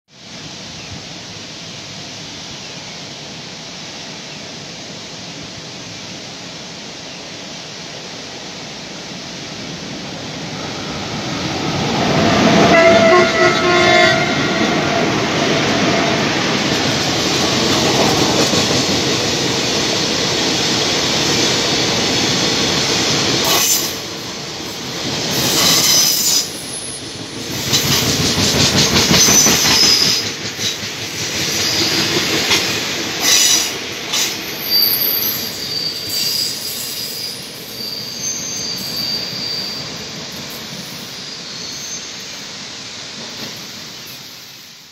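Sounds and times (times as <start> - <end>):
waterfall hiss: 0.1 - 44.9
locomotive horn: 12.6 - 15.1
high-pitched wheel squeals: 34.6 - 40.0, 40.8 - 42.3.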